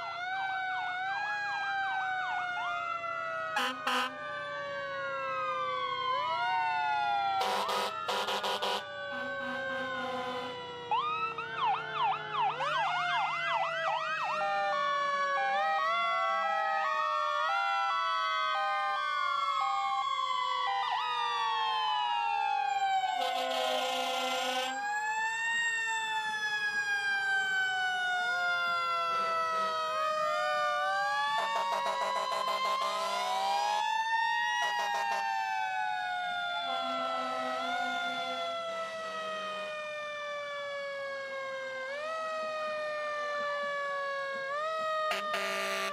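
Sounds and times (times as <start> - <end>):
emergency sirens wailing: 0.0 - 45.9
long horn blasts: 3.6 - 4.2, 7.4 - 10.6, 23.2 - 24.7, 36.6 - 38.4, 45.1 - 45.9.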